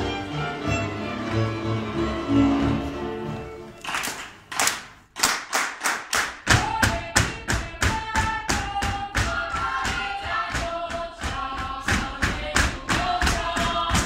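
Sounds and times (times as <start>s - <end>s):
folk fiddle music: 0.0s - 3.8s
sharp claps: 3.8s - 6.7s.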